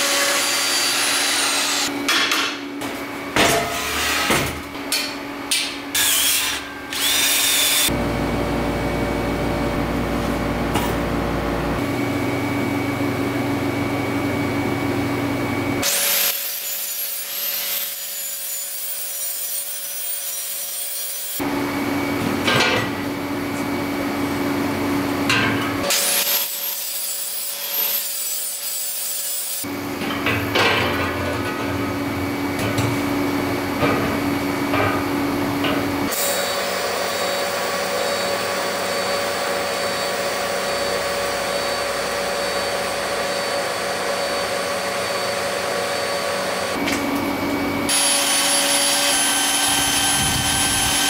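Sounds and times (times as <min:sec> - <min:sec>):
shop tool sounds: 0:00.0 - 0:08.0, 0:15.8 - 0:21.5, 0:25.2 - 0:33.0, 0:33.7 - 0:51.0
angle grinder grinding steel: 0:05.9 - 0:08.0.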